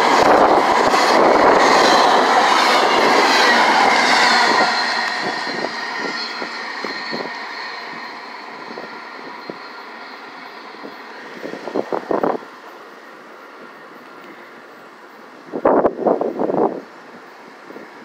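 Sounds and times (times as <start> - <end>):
train wheels rumbling on rails: 0.0 - 18.0
faint high whine: 3.5 - 15.6.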